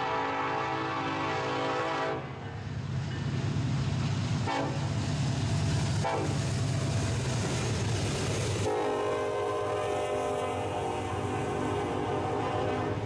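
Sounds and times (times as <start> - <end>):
locomotive horn: 0.0 - 2.4, 4.4 - 4.9, 6.0 - 6.4, 8.6 - 13.0
diesel locomotive engines rumbling: 0.0 - 13.0
train wheels on rails: 0.0 - 13.0.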